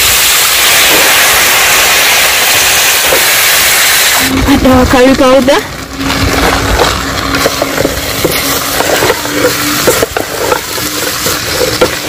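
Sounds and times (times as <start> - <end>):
frying hiss: 0.0 - 12.0
spoon scraping and knocking a pan: 7.4 - 12.0.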